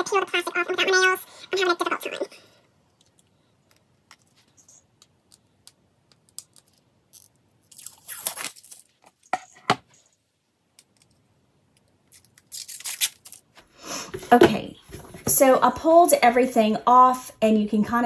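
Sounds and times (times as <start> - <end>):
plastic film peeling: 6.3 - 9.1, 12.1 - 13.5.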